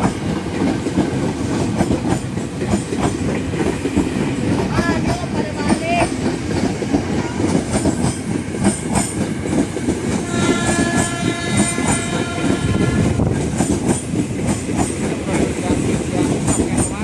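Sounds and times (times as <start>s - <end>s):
train wheels rumbling and clacking: 0.0s - 17.0s
train horn: 10.2s - 13.4s.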